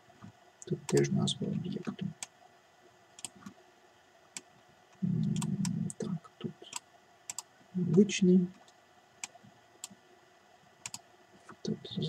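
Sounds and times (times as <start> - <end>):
low murmur of man's voice: 0.7 - 2.2, 5.0 - 6.8, 7.8 - 8.6, 11.5 - 12.0
computer mouse clicks: 3.2 - 3.6, 6.7 - 7.5, 10.8 - 11.6.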